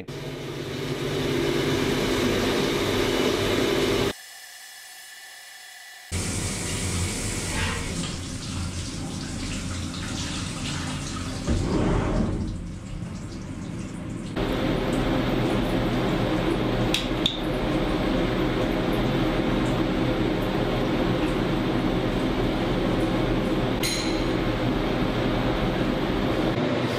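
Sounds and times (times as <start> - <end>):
steady machine hum: 0.0 - 4.2, 14.2 - 26.9.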